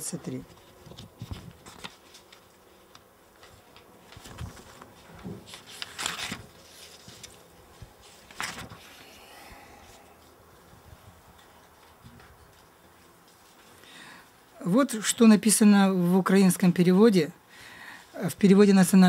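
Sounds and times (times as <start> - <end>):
paper pages turning: 0.2 - 9.2.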